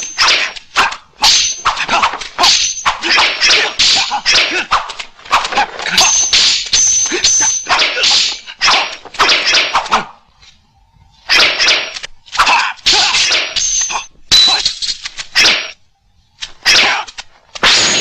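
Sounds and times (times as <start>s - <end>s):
fighters shouting: 0.0s - 6.3s, 7.0s - 9.0s, 11.3s - 14.1s, 16.6s - 17.1s.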